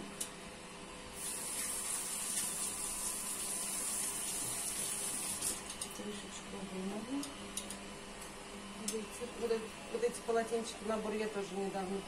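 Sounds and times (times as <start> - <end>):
water running into sink: 1.2 - 5.7.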